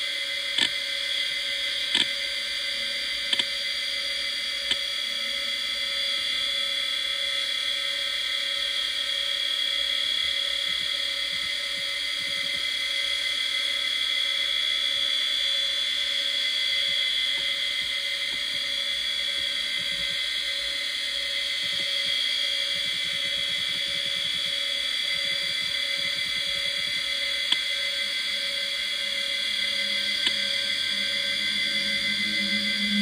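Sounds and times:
hard drive high-pitched whine: 0.0 - 33.0
low hum: 14.6 - 33.0.

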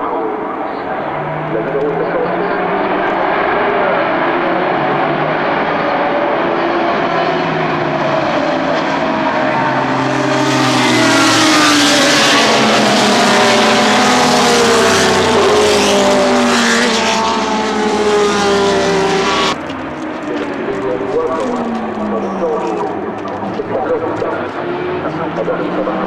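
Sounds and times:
race cars passing: 0.0 - 26.0.

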